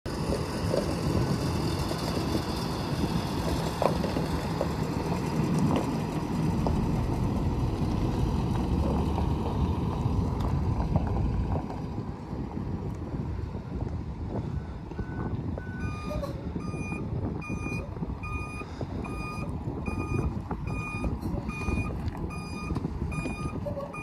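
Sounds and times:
bus engine rumbling: 0.0s - 24.0s
tyres crunching gravel: 20.3s - 24.0s.

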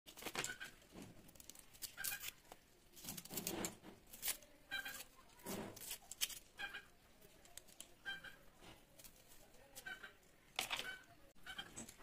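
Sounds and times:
onion skins crackling and tearing: 0.1s - 8.0s.

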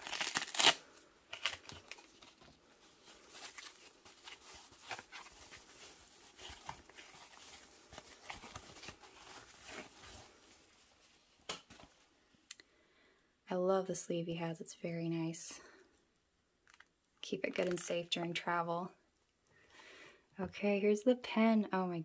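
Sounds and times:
foam packing wrap rustling: 0.0s - 11.5s.

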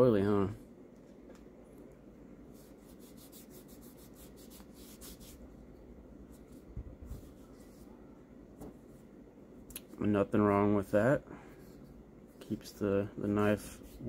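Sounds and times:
cloth rubbing on knife handle: 2.5s - 5.5s, 6.2s - 8.0s.

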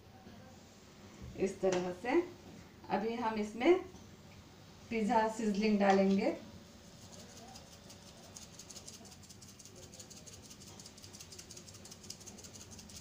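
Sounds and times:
dry flakes rattling in shaker jar: 6.8s - 13.0s.

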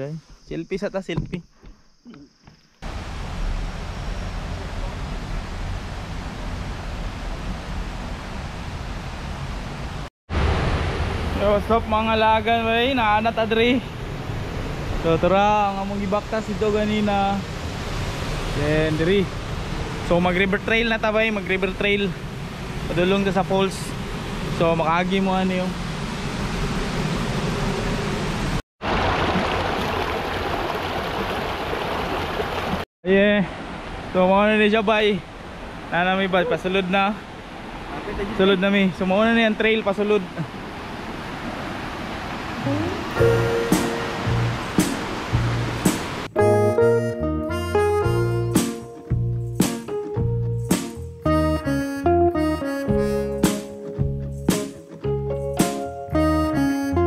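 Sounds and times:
water rushing over rocks: 28.8s - 32.8s, 39.8s - 46.3s.

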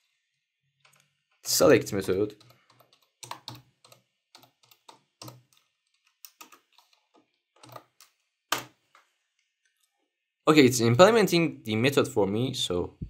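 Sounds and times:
keyboard typing: 0.8s - 8.8s.

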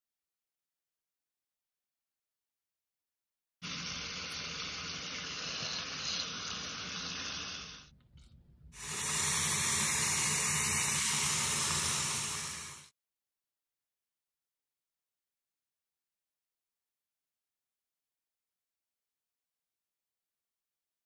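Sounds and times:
tap water running into sink: 8.8s - 12.9s.

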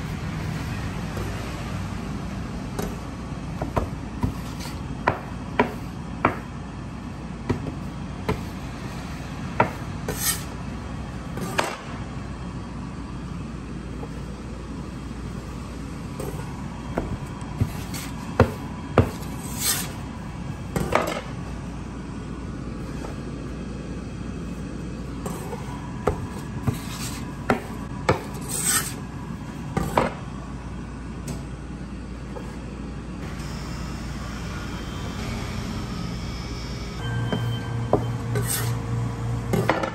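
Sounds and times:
steady low hum: 0.0s - 39.9s
cleaver scraping dough: 4.2s - 4.9s, 9.7s - 10.5s, 17.6s - 20.0s, 25.3s - 29.0s, 37.9s - 38.8s.

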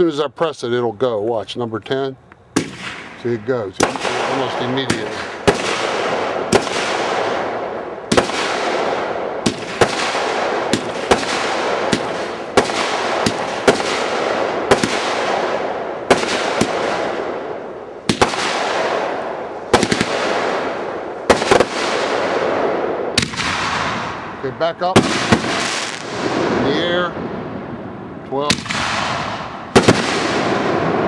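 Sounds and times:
fireworks shots firing: 2.5s - 31.0s
rushing hiss of fireworks: 25.0s - 27.1s.

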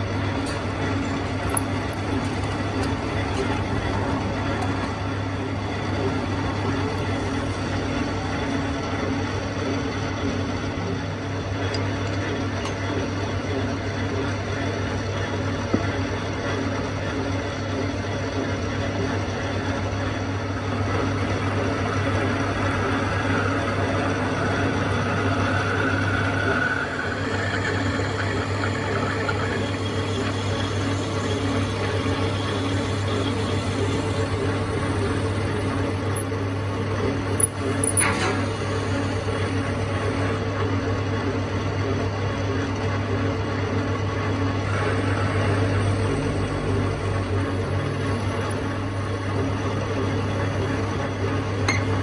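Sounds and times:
machine tool humming: 0.0s - 9.4s, 25.4s - 38.8s
faint machine whine: 0.0s - 52.0s.

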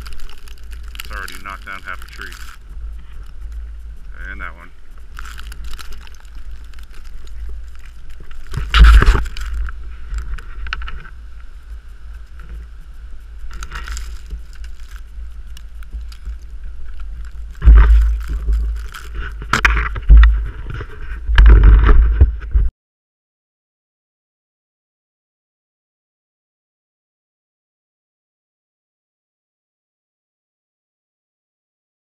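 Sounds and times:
wind buffeting microphone: 0.0s - 22.7s.

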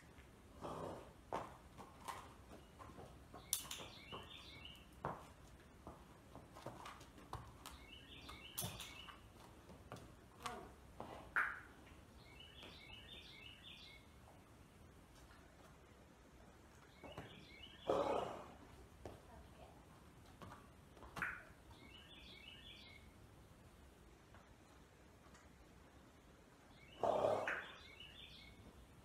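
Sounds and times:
small bird chirping: 3.3s - 4.9s, 7.7s - 9.3s.

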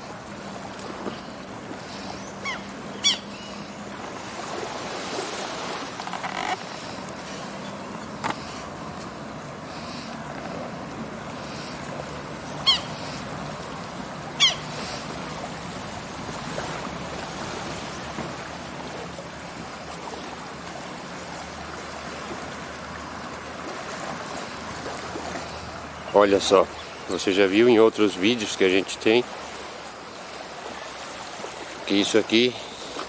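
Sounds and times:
small waves washing on beach: 0.0s - 33.0s
sharp bird calls: 2.0s - 3.7s, 12.6s - 13.2s, 14.4s - 15.0s.

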